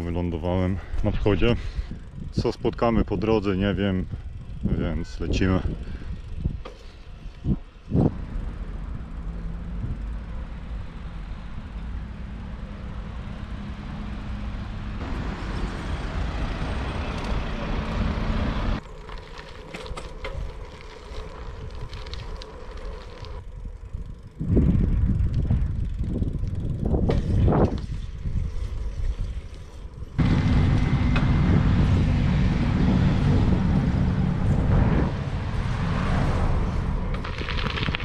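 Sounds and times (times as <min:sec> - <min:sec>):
bicycle tyre and road noise: 0:00.0 - 0:38.0
wind buffeting microphone: 0:00.6 - 0:11.8, 0:21.3 - 0:38.0.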